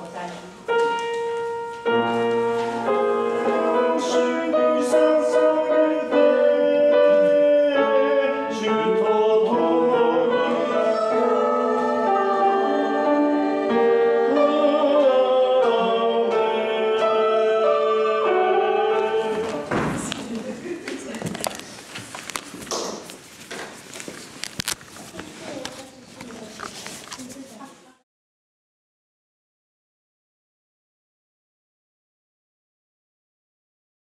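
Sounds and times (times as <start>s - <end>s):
piano accompaniment: 0.0s - 20.3s
choir singing sustained chords: 2.7s - 19.7s.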